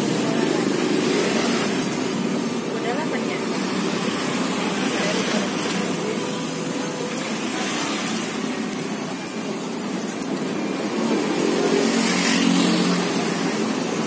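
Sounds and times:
faint background voices: 0.0s - 9.8s
car traffic: 0.0s - 14.0s
passing motorbikes: 0.0s - 14.0s.

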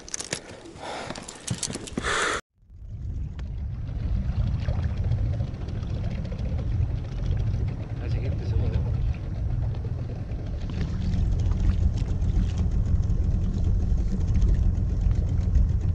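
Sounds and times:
clicks and rustles of fish handling: 0.0s - 2.0s
outboard motor rumbling: 2.6s - 15.9s.

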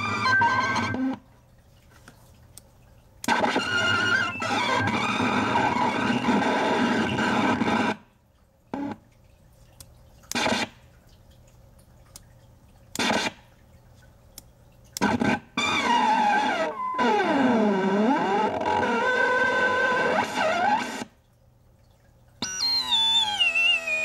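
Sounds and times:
distorted electronic warble: 0.0s - 1.2s, 3.3s - 8.0s, 15.0s - 21.1s, 22.4s - 24.0s
short electronic blips: 3.3s - 6.4s, 15.6s - 21.0s, 22.4s - 24.0s.

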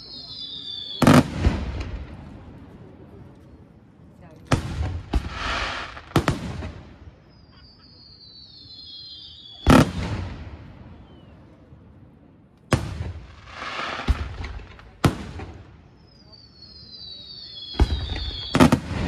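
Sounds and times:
firework whistles: 0.0s - 1.8s, 5.1s - 6.3s, 7.2s - 10.2s, 13.4s - 14.5s, 15.1s - 19.0s
firework bangs: 0.2s - 2.6s, 4.5s - 7.2s, 9.5s - 10.8s, 12.7s - 16.1s, 17.6s - 19.0s
hissing firework tails: 4.6s - 7.0s, 12.7s - 19.0s.

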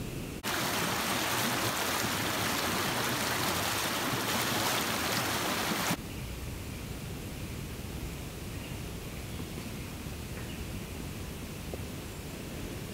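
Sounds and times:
quiet bush ambience: 0.0s - 12.9s
creek water rushing: 0.4s - 6.0s.

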